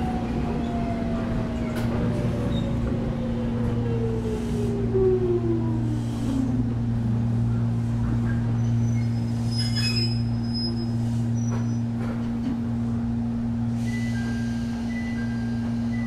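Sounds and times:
faint brake squeal: 8.5s - 11.9s, 13.8s - 16.0s.

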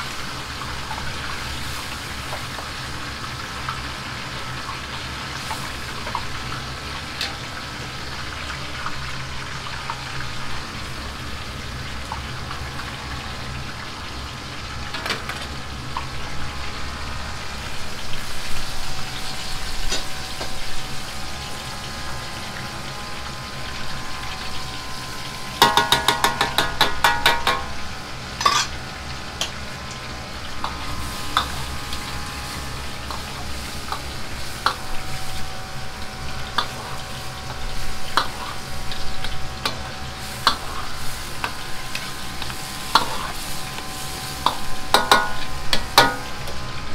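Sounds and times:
gas burner hum: 0.0s - 46.9s
sauce simmering and sizzling: 0.0s - 46.9s.

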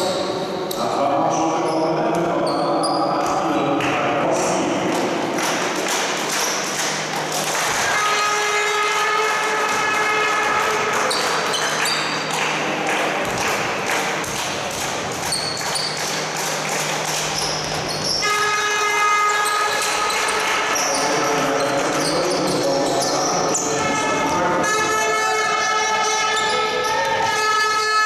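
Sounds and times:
shoes squeaking on hardwood court: 1.6s - 3.5s, 6.0s - 8.0s, 9.5s - 12.5s, 13.2s - 18.4s, 19.2s - 24.4s, 26.0s - 28.0s
basketball bouncing: 9.6s - 12.1s, 13.2s - 18.2s.

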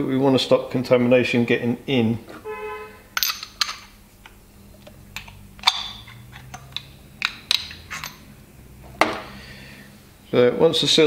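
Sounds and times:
small parts clicking and tapping: 3.2s - 8.2s.

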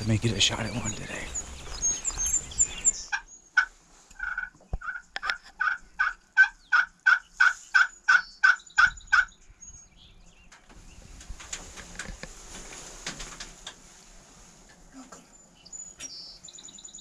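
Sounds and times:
turkey yelps: 3.0s - 9.3s.

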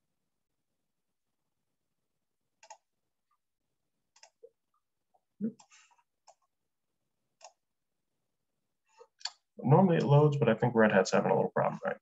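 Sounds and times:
computer mouse clicks: 2.6s - 2.9s, 4.1s - 4.5s, 5.6s - 6.5s, 7.4s - 7.6s.

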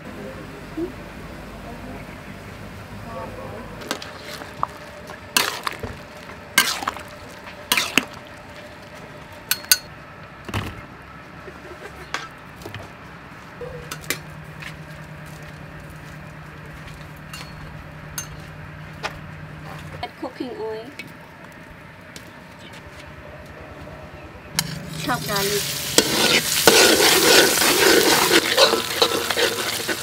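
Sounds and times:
metal utensils clinking on wok: 24.6s - 30.0s.

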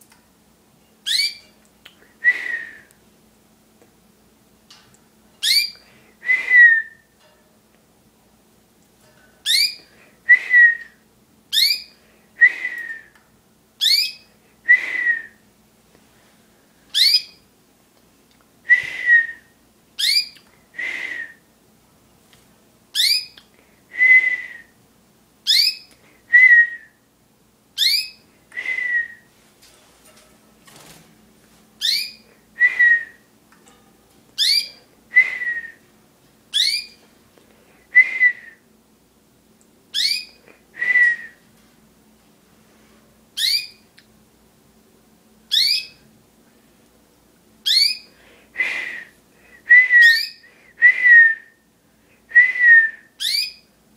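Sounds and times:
small birds chirping: 1.0s - 1.6s, 5.4s - 5.8s, 9.4s - 9.9s, 11.5s - 12.0s, 13.8s - 14.3s, 16.9s - 17.5s, 20.0s - 20.5s, 23.0s - 23.5s, 27.8s - 28.3s, 31.8s - 32.3s, 34.4s - 34.8s, 36.5s - 37.0s, 39.9s - 40.4s, 45.5s - 46.0s, 47.7s - 48.1s
person whistling: 2.2s - 2.9s, 6.2s - 7.1s, 10.3s - 11.0s, 28.6s - 29.3s, 32.6s - 33.2s, 34.6s - 35.8s, 38.0s - 38.6s, 40.8s - 41.4s, 49.7s - 51.5s, 52.3s - 53.1s.

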